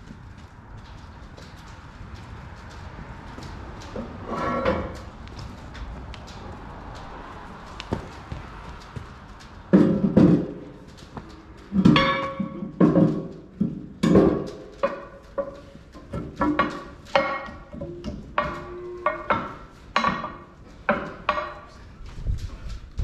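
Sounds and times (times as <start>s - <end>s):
metal weights clanking: 3.8s - 6.4s, 11.6s - 13.4s.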